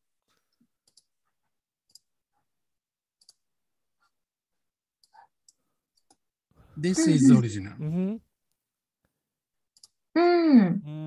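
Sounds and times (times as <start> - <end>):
computer mouse clicks: 0.8 - 1.1, 1.8 - 2.1, 3.2 - 3.4, 5.0 - 6.2.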